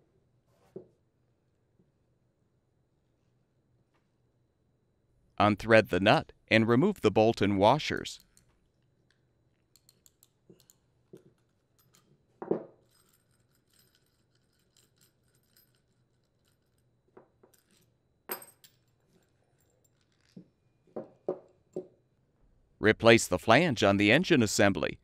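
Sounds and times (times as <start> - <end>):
metal nut and washers clinking: 8.0 - 21.8.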